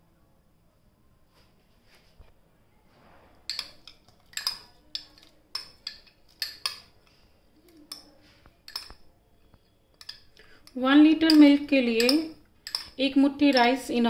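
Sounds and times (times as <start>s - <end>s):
spoon clinking on glass bowl: 3.5s - 7.0s, 7.9s - 8.1s, 8.7s - 14.0s.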